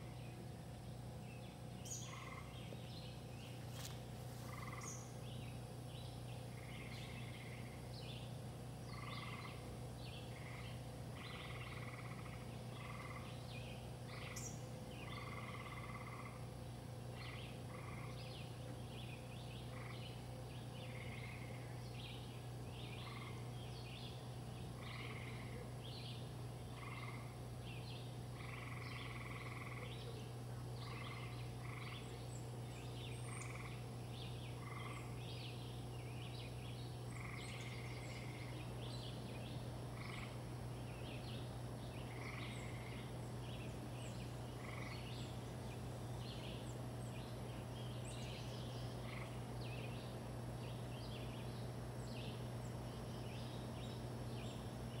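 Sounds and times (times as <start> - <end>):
air conditioner unit humming: 0.0 - 55.0
birds chirping: 0.0 - 55.0.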